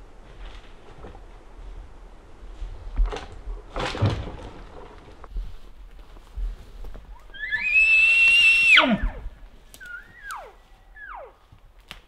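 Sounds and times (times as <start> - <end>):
elk bugling: 7.2 - 11.6.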